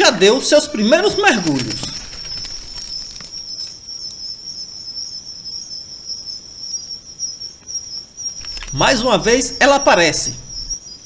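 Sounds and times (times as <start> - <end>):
insects trilling: 0.0 - 11.0.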